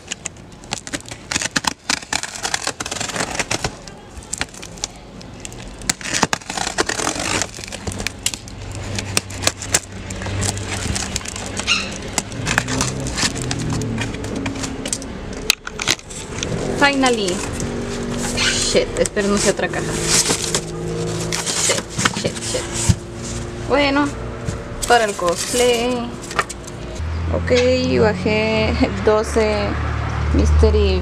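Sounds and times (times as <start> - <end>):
box cutter slitting plastic: 0.0 - 4.9, 5.8 - 23.2
plastic wrap crinkling: 0.0 - 23.7, 24.4 - 27.0
passing traffic engine hum: 6.5 - 31.0.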